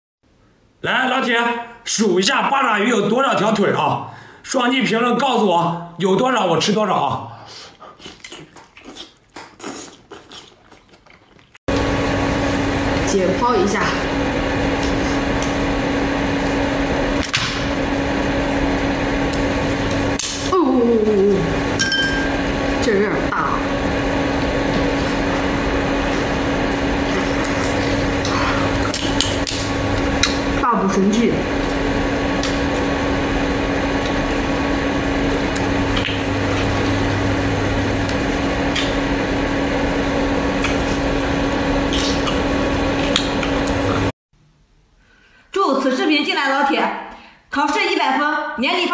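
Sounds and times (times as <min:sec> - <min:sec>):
wet chewing: 0:07.7 - 0:11.6, 0:40.6 - 0:41.0
low hum with hiss: 0:11.7 - 0:47.7.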